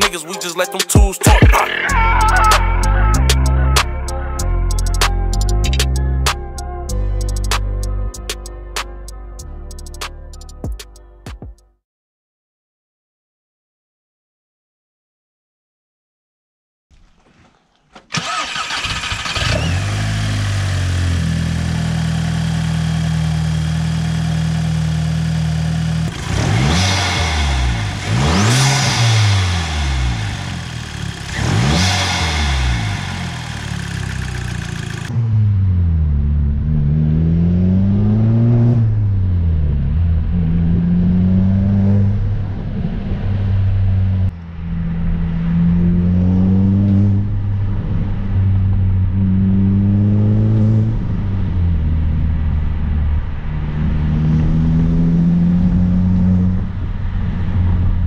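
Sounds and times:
engine revving: 0:01.6 - 0:06.4, 0:18.1 - 0:58.0
engine accelerating and shifting: 0:01.6 - 0:10.1, 0:18.1 - 0:58.0
car engine idling: 0:01.7 - 0:06.1, 0:18.0 - 0:35.2.

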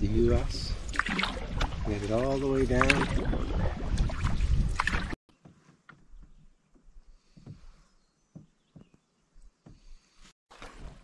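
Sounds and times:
water sounds: 0:00.0 - 0:05.2, 0:10.5 - 0:11.0
wind buffeting microphone: 0:00.0 - 0:05.2
paddle strokes splashing: 0:00.7 - 0:06.3, 0:10.5 - 0:11.0.

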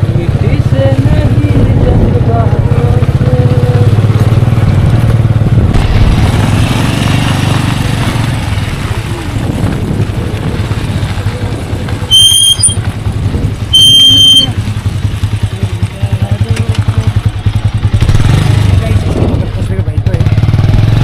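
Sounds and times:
motorcycle engine running: 0:00.0 - 0:21.0
tyres on gravel: 0:03.9 - 0:17.8
high-pitched beep: 0:12.1 - 0:12.8, 0:13.8 - 0:14.6.

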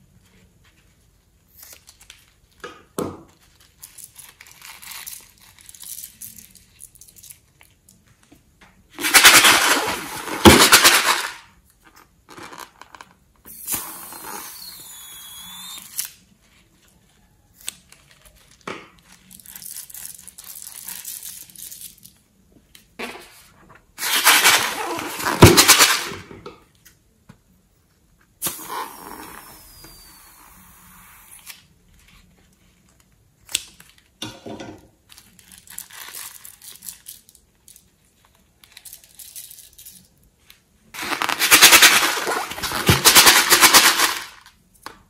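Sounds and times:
hissing with high whistle: 0:13.5 - 0:16.0, 0:28.4 - 0:31.4
balloons squeezed over slime: 0:13.5 - 0:16.1, 0:28.4 - 0:31.5, 0:41.0 - 0:43.8.

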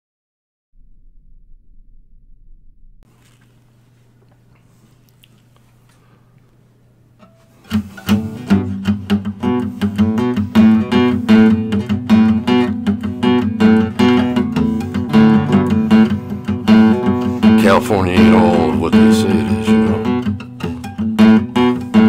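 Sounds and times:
acoustic guitar strumming: 0:07.2 - 0:22.0.

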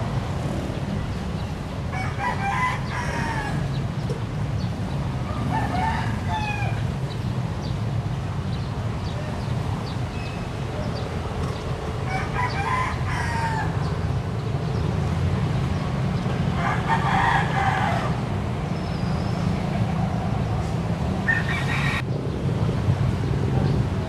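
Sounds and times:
rooster crowing: 0:01.9 - 0:03.7, 0:05.3 - 0:06.8, 0:12.1 - 0:13.9, 0:16.6 - 0:18.2, 0:21.2 - 0:22.0.

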